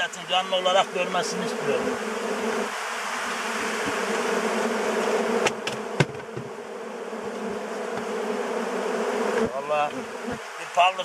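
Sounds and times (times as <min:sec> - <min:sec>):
bees buzzing: 0:00.0 - 0:11.0
sharp knocks: 0:05.4 - 0:06.6.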